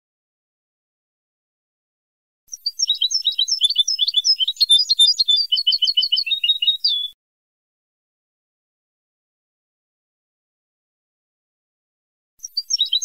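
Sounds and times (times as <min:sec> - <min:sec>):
goldfinch twittering song: 0:02.5 - 0:07.2, 0:12.4 - 0:13.0.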